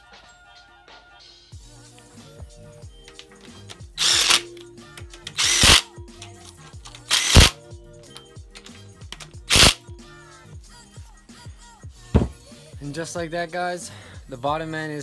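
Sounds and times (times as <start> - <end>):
music: 0.0 - 15.0
cordless impact gun bursts: 4.0 - 4.5, 5.4 - 5.9, 7.1 - 7.6, 9.5 - 9.8.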